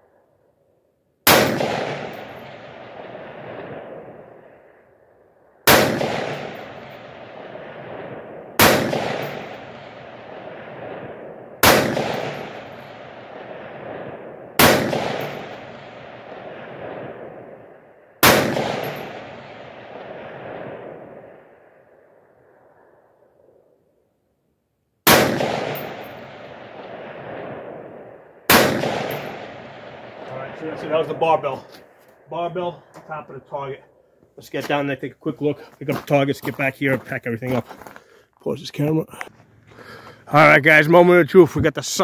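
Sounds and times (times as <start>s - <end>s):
rifle shots with rolling echo: 1.2s - 24.0s, 25.0s - 34.0s.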